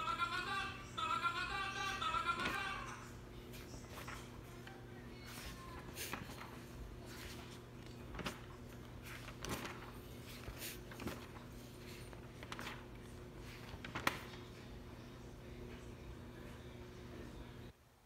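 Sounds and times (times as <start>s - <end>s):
steady low hum: 0.0s - 17.8s
soft handling clicks and rustles: 3.4s - 14.8s.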